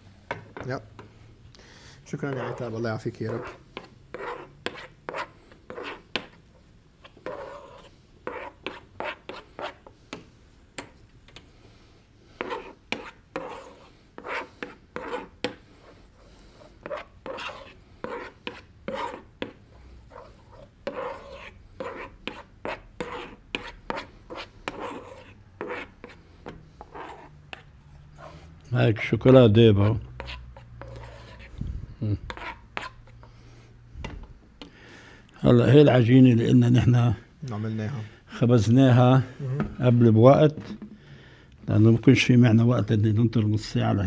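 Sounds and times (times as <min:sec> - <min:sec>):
utensil scraping and stirring pot: 0:02.0 - 0:34.7.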